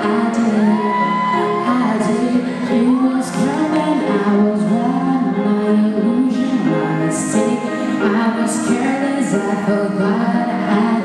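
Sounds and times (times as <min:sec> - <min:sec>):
musical accompaniment: 0:00.0 - 0:11.0
woman singing into microphone: 0:00.0 - 0:11.0.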